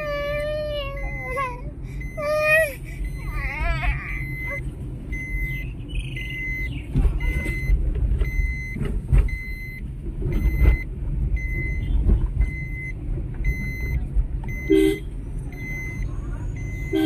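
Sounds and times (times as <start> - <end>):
car rumbling over rough track: 0.0 - 16.9
high warning beep: 4.1 - 9.8, 15.5 - 17.0.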